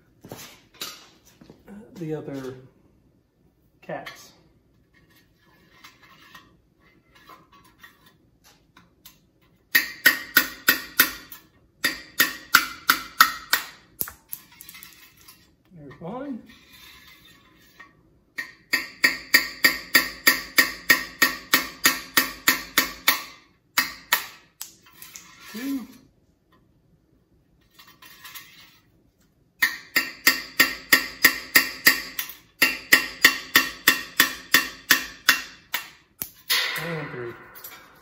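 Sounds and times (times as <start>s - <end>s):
rod ringing strikes on metal: 36.5s - 38.0s.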